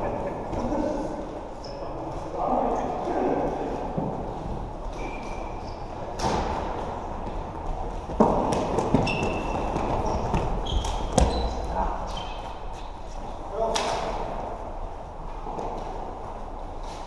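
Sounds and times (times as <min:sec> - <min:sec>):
sports hall background: 0:00.0 - 0:17.0
sneaker squeaks on floor: 0:08.9 - 0:12.6.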